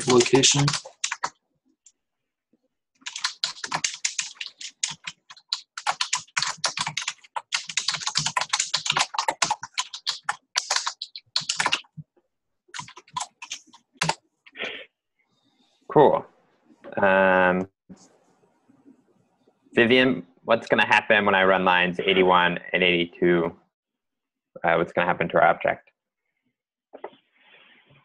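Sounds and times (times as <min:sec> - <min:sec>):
typing on computer keyboard: 0:00.0 - 0:01.4, 0:03.0 - 0:12.0, 0:12.7 - 0:14.2.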